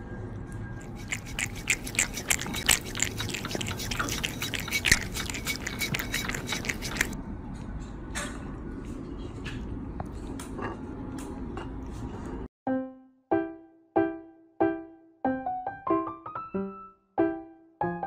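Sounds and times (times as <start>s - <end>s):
kitten suckling and lapping: 0.5s - 7.2s.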